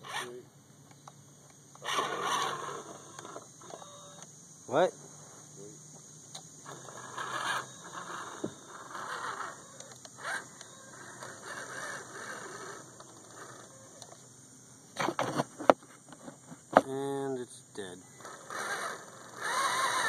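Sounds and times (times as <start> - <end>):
toy truck motor and gear noise: 0.0 - 0.4, 1.7 - 4.3, 6.6 - 14.3, 18.1 - 20.0.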